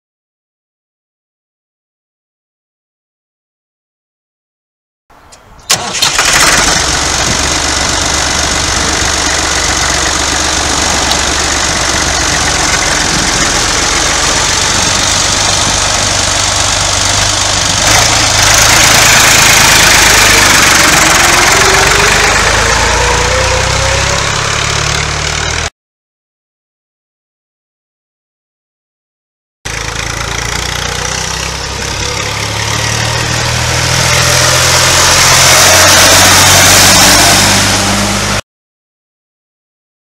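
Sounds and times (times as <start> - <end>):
diesel engine starting and running: 5.3 - 25.7, 29.7 - 38.4
tractor driving with whine: 5.4 - 25.7, 29.7 - 38.4.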